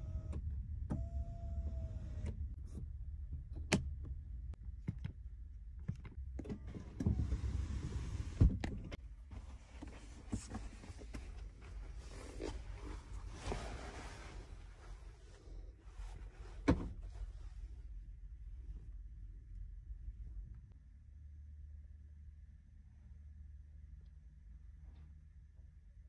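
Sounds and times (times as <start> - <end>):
power seat motor whirring: 0.0 - 2.6.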